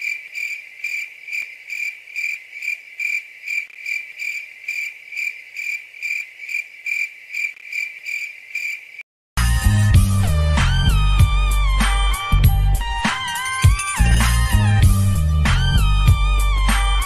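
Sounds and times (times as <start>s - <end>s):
cricket chirping: 0.0s - 9.0s.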